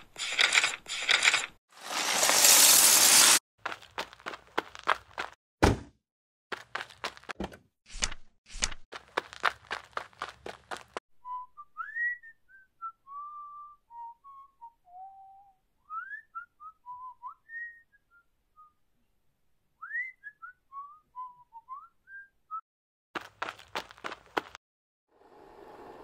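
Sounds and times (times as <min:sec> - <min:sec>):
person whistling a tune: 0:11.2 - 0:18.8, 0:19.8 - 0:22.6.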